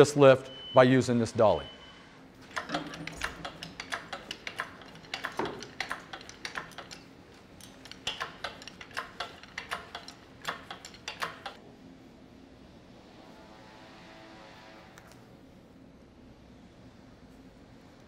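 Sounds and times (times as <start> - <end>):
hydraulic hoist clicks and clanks: 2.4 - 11.6.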